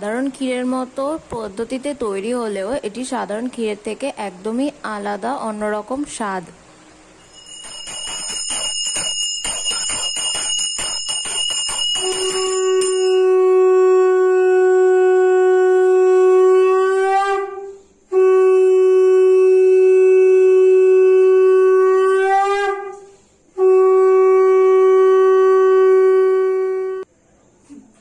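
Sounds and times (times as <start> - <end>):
conch shell blasts: 7.2 - 27.1.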